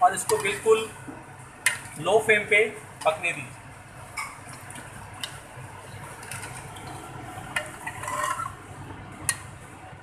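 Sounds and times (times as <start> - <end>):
ladle stirring thick gravy: 3.0 - 9.5.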